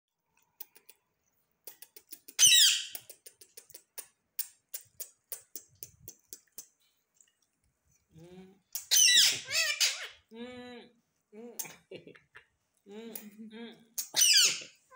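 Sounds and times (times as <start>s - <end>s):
parakeet harsh squawk: 2.4s - 2.9s, 8.9s - 10.2s, 14.1s - 14.7s.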